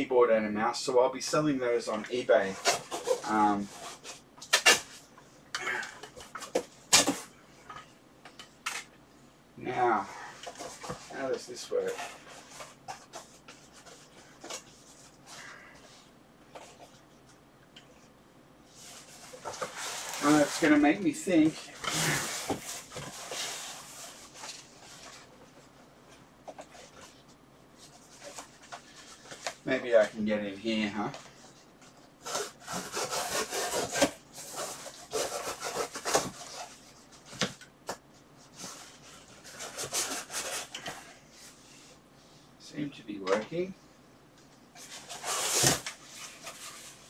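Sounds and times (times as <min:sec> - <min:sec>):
scraping rustle: 0:18.7 - 0:25.7.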